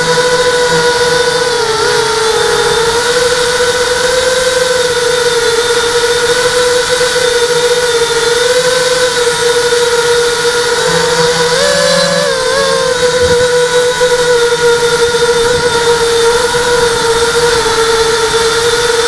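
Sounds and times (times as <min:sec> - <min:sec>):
drone propellers whining: 0:00.0 - 0:19.0.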